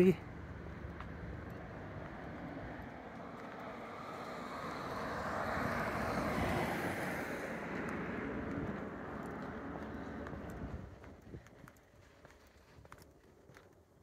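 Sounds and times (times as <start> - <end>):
vehicle driving past: 0.2 - 11.1.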